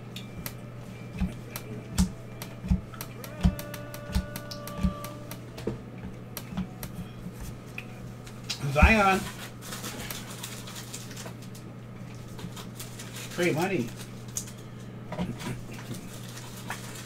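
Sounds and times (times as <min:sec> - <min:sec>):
steady low hum: 0:00.0 - 0:17.0
trading cards tapping: 0:01.2 - 0:05.5.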